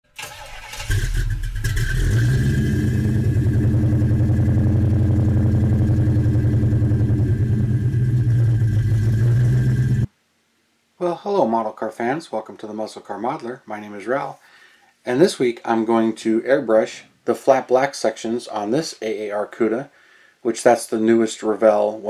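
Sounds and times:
car engine idling: 0.2s - 10.1s.

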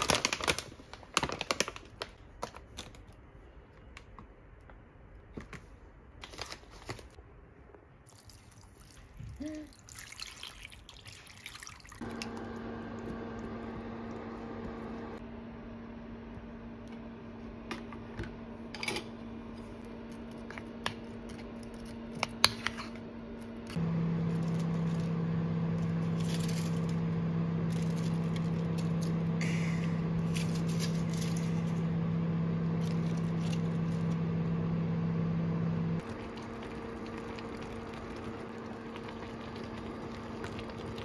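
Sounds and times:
induction cooktop humming: 12.0s - 41.0s
food bubbling in a pan: 36.0s - 41.0s.

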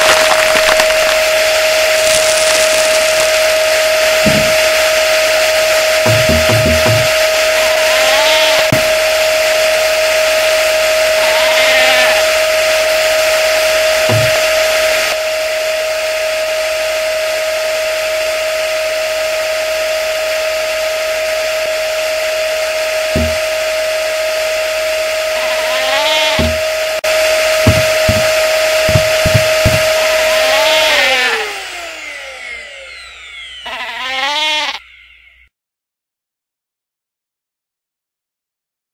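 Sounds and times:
vacuum cleaner motor whining: 0.0s - 35.3s
low thumps: 4.2s - 5.0s, 6.1s - 7.2s, 14.1s - 14.7s, 23.2s - 23.6s, 26.4s - 26.8s, 27.6s - 30.2s
brief warbling squeaks: 32.4s - 35.5s.

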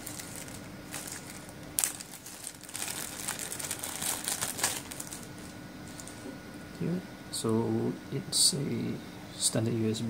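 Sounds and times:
plastic bag crinkling: 0.0s - 6.2s
sharp plastic crackle: 0.0s - 6.2s.

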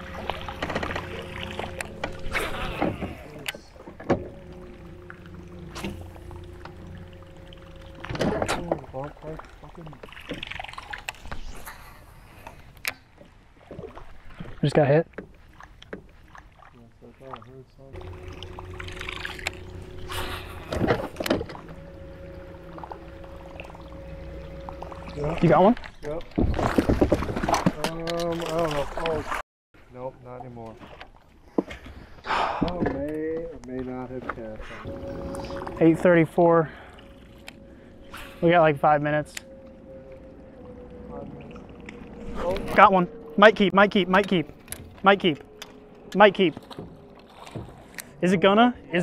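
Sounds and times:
electric trolling motor humming: 0.0s - 11.4s, 17.9s - 27.2s, 34.8s - 49.0s.

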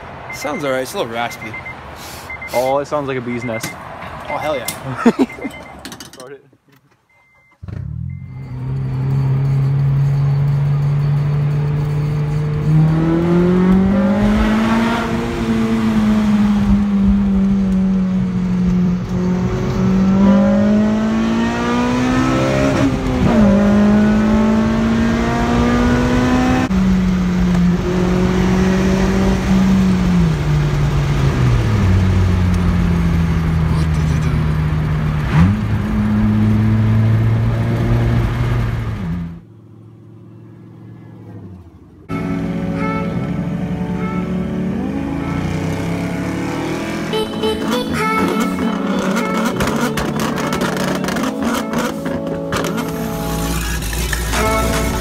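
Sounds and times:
car engine exhaust revving: 48.2s - 55.0s.

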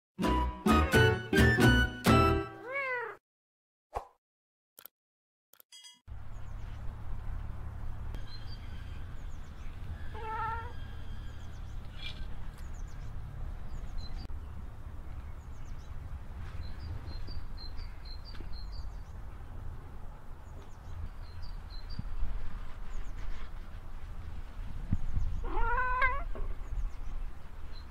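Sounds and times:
cat meowing: 2.6s - 3.2s, 10.1s - 10.8s, 25.4s - 26.4s.

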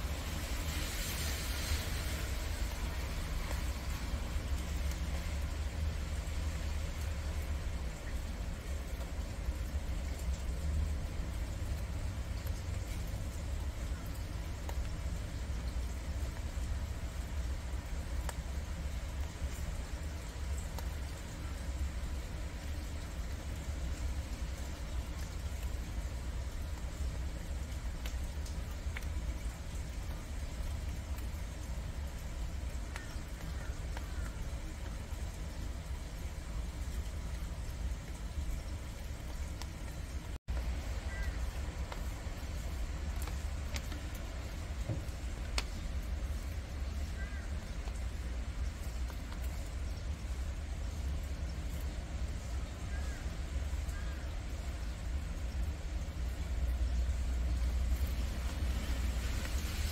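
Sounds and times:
faint hiss: 0.0s - 59.9s.

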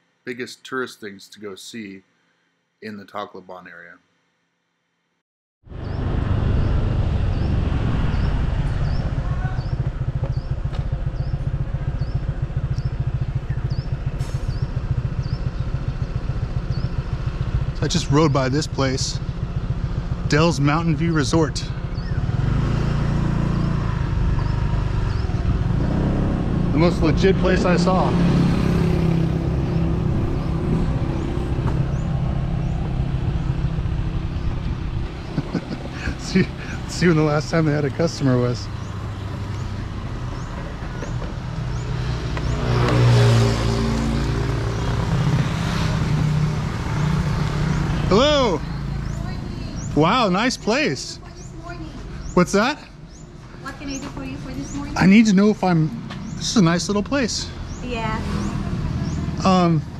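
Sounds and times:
wind rumble on microphone: 5.7s - 12.2s
motorbike engine running: 6.7s - 52.4s, 53.0s - 59.7s.

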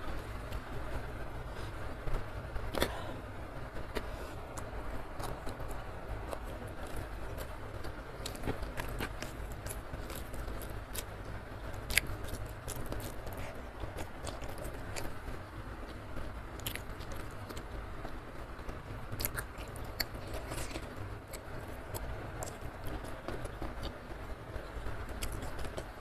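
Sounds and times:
low steady hum: 0.0s - 26.0s
wet mouth clicks and chewing: 3.9s - 11.1s, 11.8s - 15.2s, 16.6s - 17.6s, 19.2s - 24.0s, 25.2s - 25.9s.

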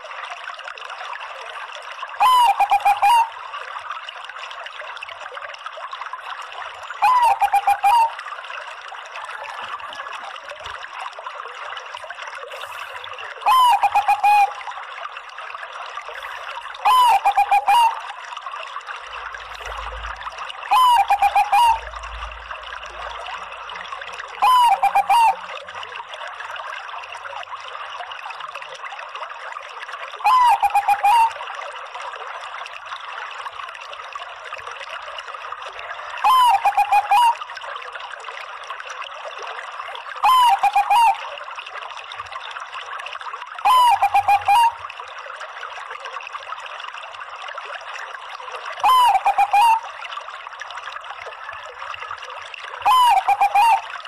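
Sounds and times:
water trickling: 0.0s - 54.0s
dove cooing: 16.8s - 17.9s, 20.7s - 21.8s, 24.4s - 25.4s, 36.2s - 37.4s, 40.2s - 41.2s, 48.8s - 49.8s, 52.9s - 53.8s.

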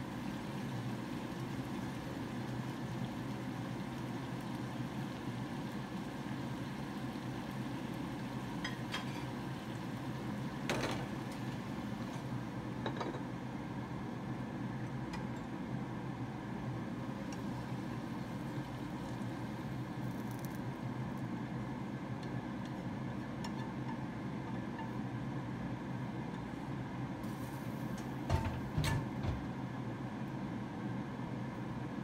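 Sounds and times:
low mechanical hum: 0.0s - 32.0s.

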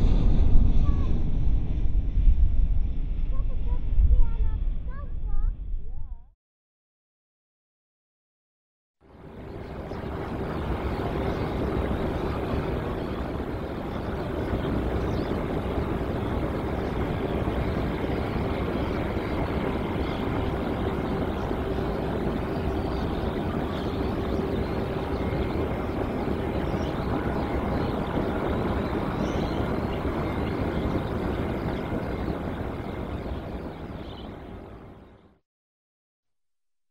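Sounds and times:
jet engine rushing hum: 9.2s - 35.1s.

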